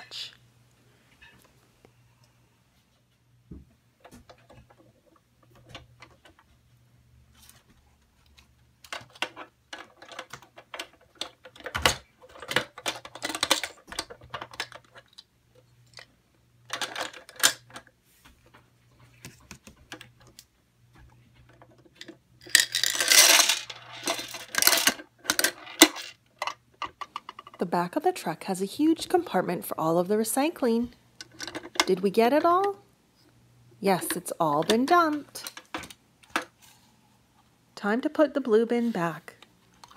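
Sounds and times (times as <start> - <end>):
plastic toy parts clicking: 8.8 - 16.1, 16.7 - 17.9, 21.7 - 27.6
small plastic pieces clattering: 8.8 - 16.1, 16.7 - 17.9, 21.6 - 27.5.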